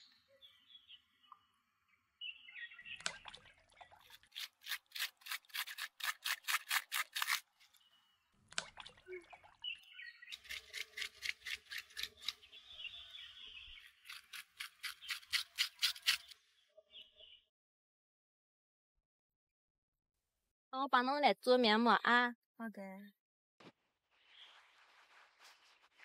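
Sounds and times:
birds chirping: 0.0s - 4.1s, 8.9s - 11.1s, 11.9s - 17.5s
plastic scraper scraping leaf: 4.2s - 7.8s, 13.9s - 16.4s.

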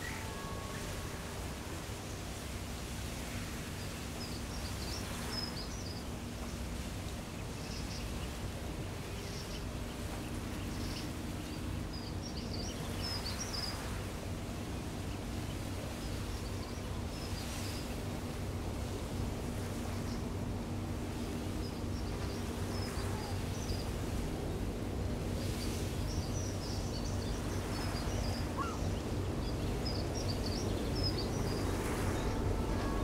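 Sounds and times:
faint hum: 0.0s - 33.0s
small birds twittering: 7.4s - 14.0s, 25.4s - 33.0s.

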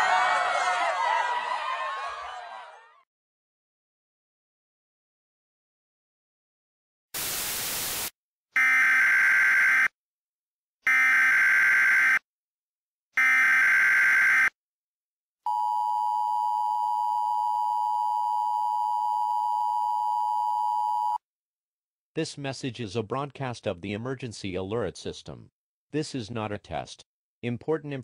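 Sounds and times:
burst of static: 7.2s - 8.1s.

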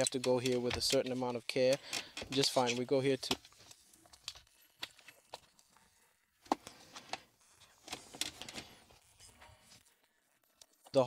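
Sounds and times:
plastic trim clicks and creaks: 0.0s - 5.5s.

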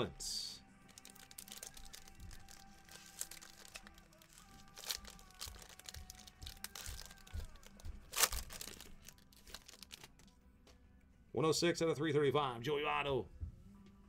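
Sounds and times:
foil wrapper crinkling and tearing: 0.9s - 10.3s.

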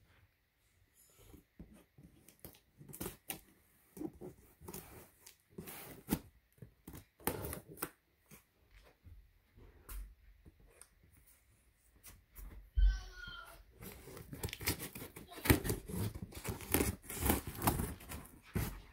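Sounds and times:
cardboard box clicks and scrapes: 13.8s - 18.9s
scissors cutting packing tape: 14.0s - 18.2s.

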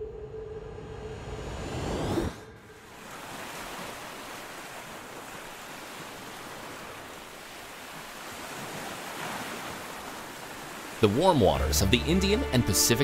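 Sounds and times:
ocean surf rushing: 0.7s - 13.0s.

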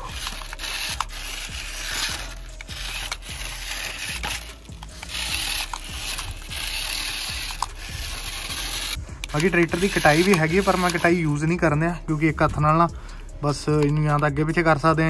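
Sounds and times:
model tractor motor whirring: 0.0s - 11.2s.

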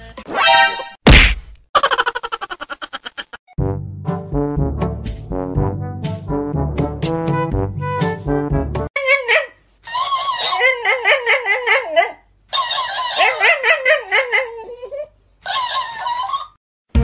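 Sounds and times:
dog whining: 9.2s - 16.6s.

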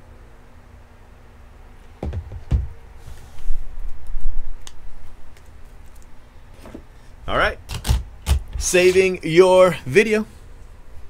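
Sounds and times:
handling thumps: 1.9s - 2.9s.

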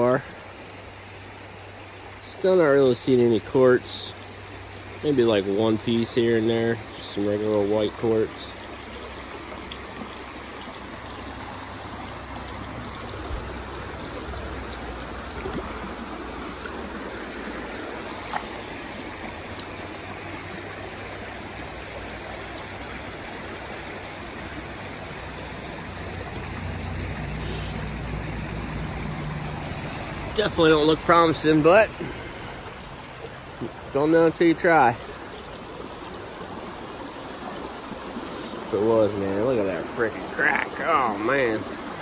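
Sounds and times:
stream water babbling: 0.0s - 42.0s
faint clicks: 26.5s - 27.0s.

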